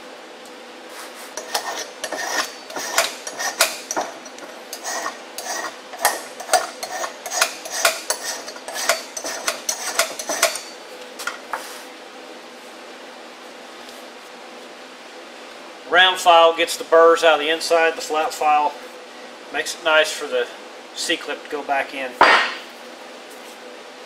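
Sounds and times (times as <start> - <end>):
hand file scraping on steel: 1.4 - 10.7.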